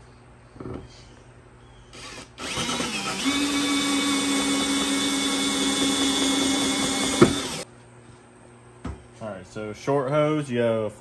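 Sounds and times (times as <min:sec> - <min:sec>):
cordless drill whine: 0:01.9 - 0:07.6.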